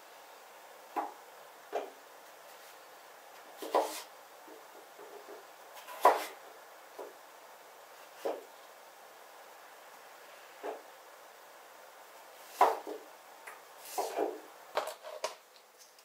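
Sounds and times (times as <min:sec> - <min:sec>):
knife cutting on wooden board: 0:03.6 - 0:04.1, 0:05.8 - 0:06.4.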